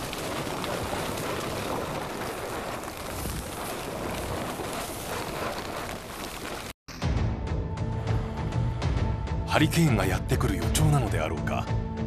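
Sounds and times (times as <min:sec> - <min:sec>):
wind on microphone: 0:00.0 - 0:06.7
wind and rain on boat tarp: 0:00.0 - 0:06.8.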